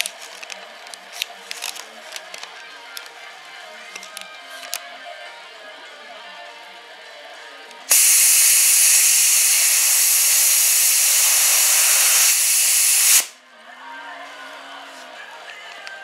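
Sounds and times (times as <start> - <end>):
hiss of rushing air: 7.9 - 13.4.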